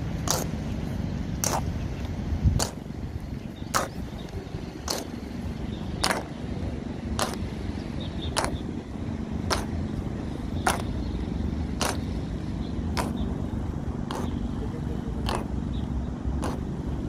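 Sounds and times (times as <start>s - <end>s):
low rumble of traffic: 0.0s - 17.0s
boots marching on pavement: 2.6s - 8.7s, 9.4s - 12.2s, 12.9s - 13.3s, 14.0s - 14.5s.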